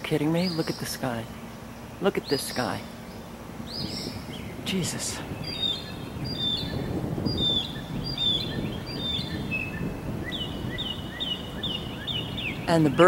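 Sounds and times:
birds chirping: 0:00.0 - 0:13.0
distant thunder rumble: 0:03.6 - 0:13.0.

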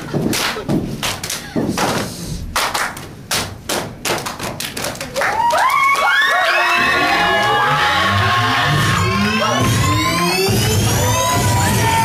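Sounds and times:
hands clapping: 0:00.0 - 0:06.8.

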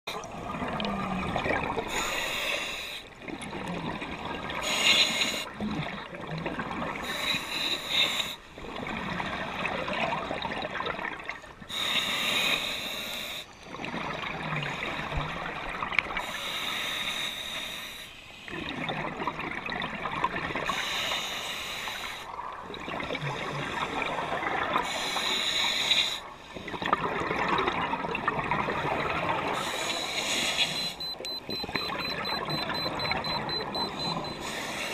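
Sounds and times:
bubbling exhalations: 0:00.1 - 0:02.1
hissing regulator inhalations: 0:29.6 - 0:34.9.

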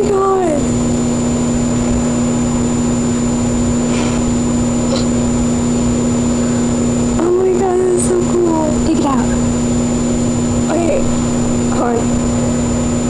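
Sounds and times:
microwave oven humming: 0:00.0 - 0:13.0.

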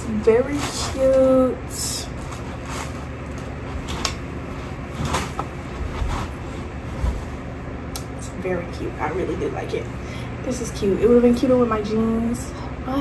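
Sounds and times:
faint rustles and clicks: 0:00.0 - 0:07.6
low room hum: 0:00.0 - 0:13.0.

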